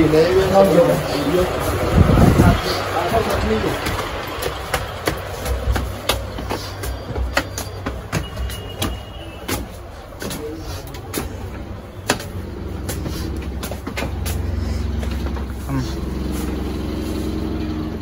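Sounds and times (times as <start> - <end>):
vehicle engine running: 0.0 - 18.0
sharp clicks and knocks: 3.8 - 15.5.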